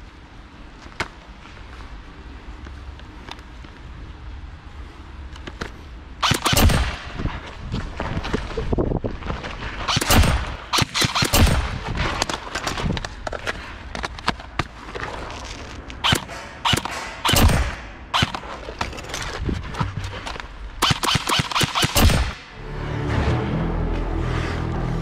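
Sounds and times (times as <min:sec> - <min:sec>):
airsoft rifle shots and bursts: 0:06.2 - 0:07.2, 0:09.8 - 0:11.8, 0:16.0 - 0:18.5, 0:20.8 - 0:22.4.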